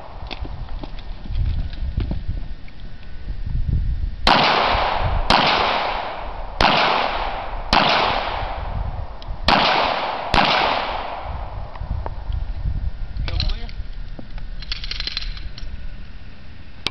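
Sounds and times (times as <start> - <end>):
pistol shots with echo: 4.3 - 8.8, 9.5 - 11.6.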